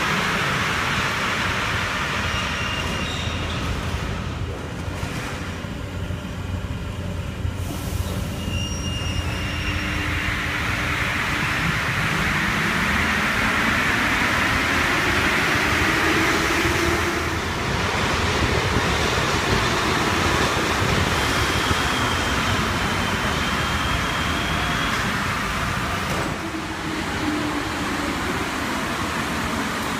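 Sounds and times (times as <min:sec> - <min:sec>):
metro train rushing: 0:00.0 - 0:29.9
wheel squeal: 0:02.2 - 0:04.0, 0:08.0 - 0:10.3, 0:21.2 - 0:25.2.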